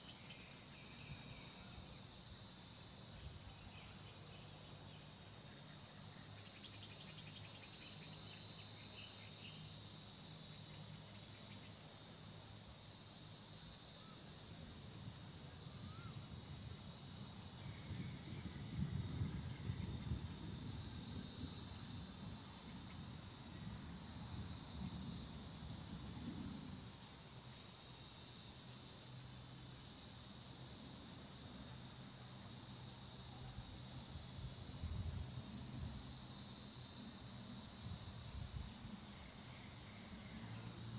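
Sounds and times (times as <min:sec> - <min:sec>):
cicadas singing: 0:00.0 - 0:40.9.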